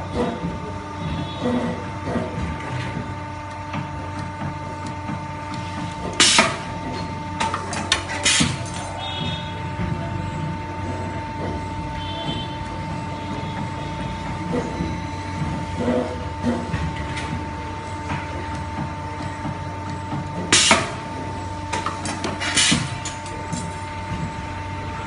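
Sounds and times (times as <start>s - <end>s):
machine mechanical hum: 0.0s - 25.0s
sharp clicks and knocks: 2.6s - 6.6s, 21.7s - 23.8s.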